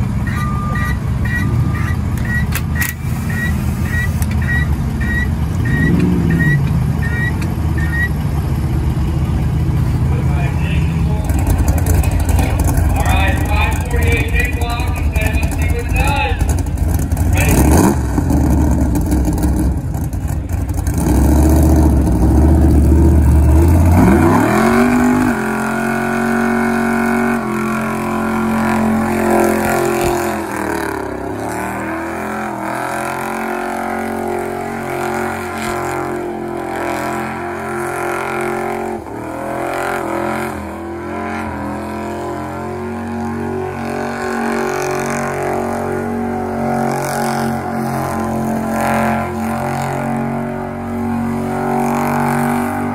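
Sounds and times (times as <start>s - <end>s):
tires spinning: 0.0s - 52.9s
van engine revving: 0.0s - 52.9s.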